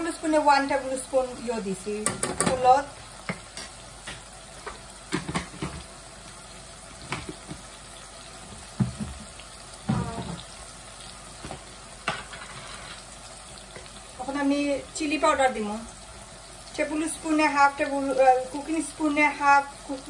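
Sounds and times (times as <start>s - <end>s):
vegetables sizzling in oil: 0.0s - 20.0s.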